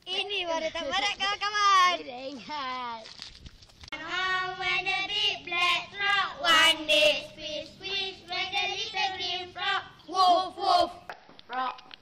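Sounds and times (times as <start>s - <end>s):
girls singing together: 4.0s - 11.1s.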